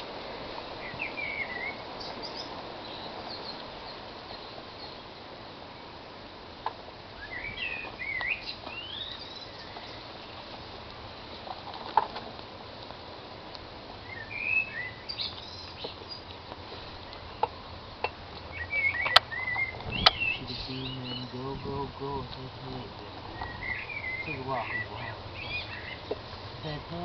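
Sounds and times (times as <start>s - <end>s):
outdoor background noise: 0.0s - 27.0s
birds warbling chirps: 0.8s - 5.2s, 7.2s - 10.6s, 14.0s - 17.6s, 18.3s - 27.0s.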